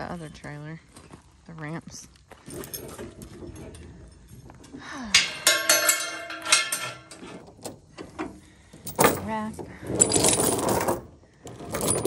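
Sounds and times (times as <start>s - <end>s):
metal chain and ramps clanking: 2.4s - 12.0s.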